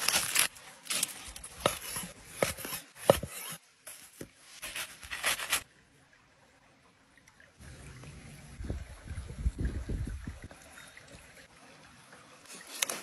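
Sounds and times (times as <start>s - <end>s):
aluminium foil crinkling: 0.0s - 1.6s, 4.6s - 5.6s.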